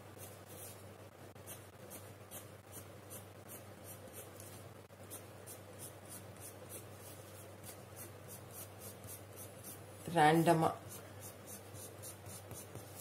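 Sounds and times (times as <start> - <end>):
pencil scratching on paper: 1.4 - 13.0.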